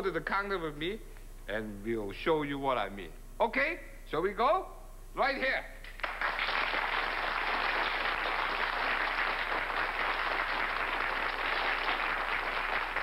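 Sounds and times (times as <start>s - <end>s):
audience applauding: 6.0s - 13.0s.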